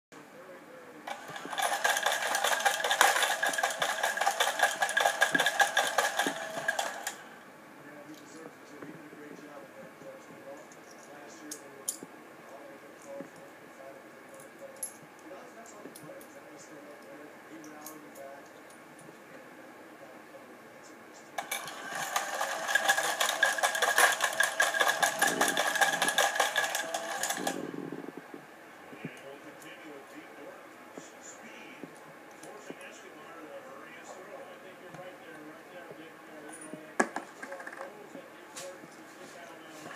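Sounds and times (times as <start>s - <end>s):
toy motor and gears whirring: 1.1s - 7.2s, 21.4s - 27.8s.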